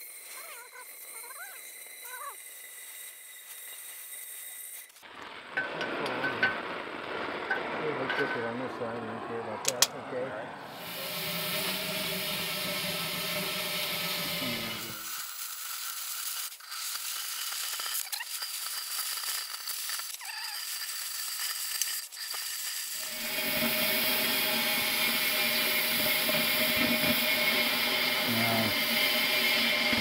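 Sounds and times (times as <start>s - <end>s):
cutting torch hissing: 0.0s - 9.1s, 9.7s - 30.0s.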